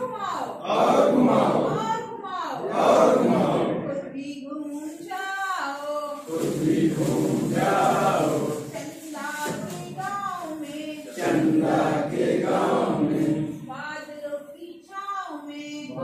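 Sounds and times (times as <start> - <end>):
group singing: 0.6 - 4.1, 6.2 - 10.0, 10.7 - 13.8
woman singing: 4.0 - 6.3, 13.6 - 16.0.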